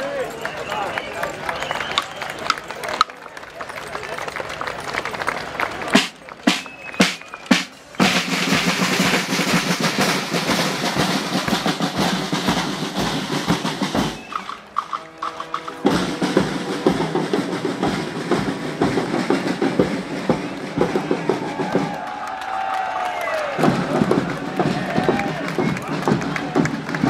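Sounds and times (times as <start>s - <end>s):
marching snare and bass drums: 5.9s - 22.0s, 23.6s - 27.0s
brass held notes: 6.5s - 17.9s.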